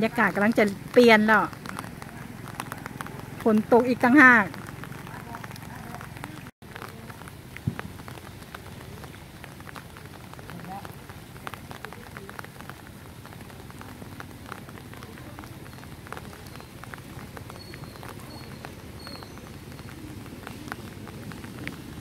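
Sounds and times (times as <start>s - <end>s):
rain pattering on pond: 0.0s - 22.0s.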